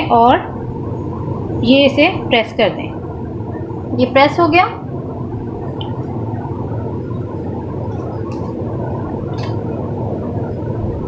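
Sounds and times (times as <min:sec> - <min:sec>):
low hum and rumble: 0:00.0 - 0:11.0.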